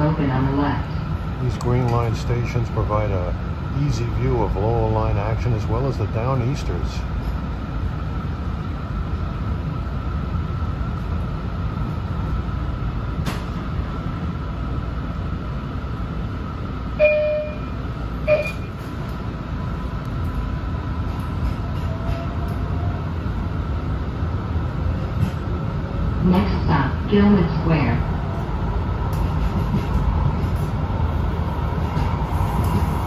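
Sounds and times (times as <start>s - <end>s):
train car rumble and hum: 0.0s - 33.0s
electronic door chimes: 18.3s - 18.7s.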